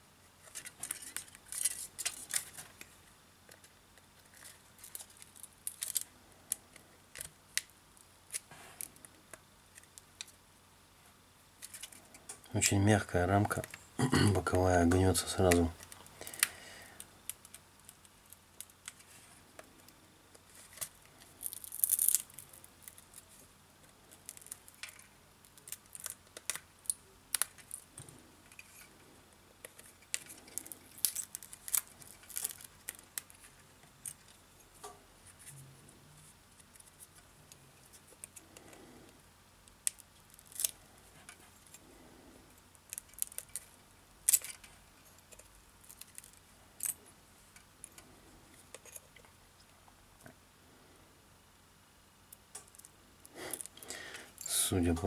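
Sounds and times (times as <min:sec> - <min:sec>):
plastic frame crackling: 0:00.4 - 0:07.7, 0:14.9 - 0:38.8, 0:42.5 - 0:48.0.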